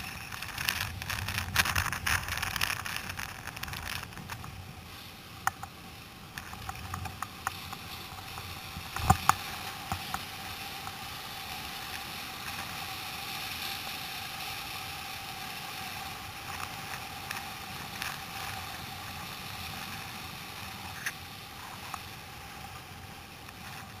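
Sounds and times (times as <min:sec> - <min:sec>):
small clicks: 0:00.0 - 0:04.6, 0:05.4 - 0:12.9, 0:15.8 - 0:22.8
surf foam rushing and hissing: 0:00.0 - 0:24.0.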